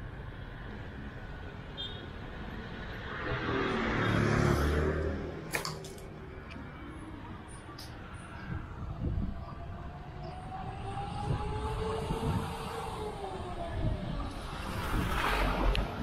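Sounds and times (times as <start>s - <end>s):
vehicle engine passing by: 3.1s - 5.5s.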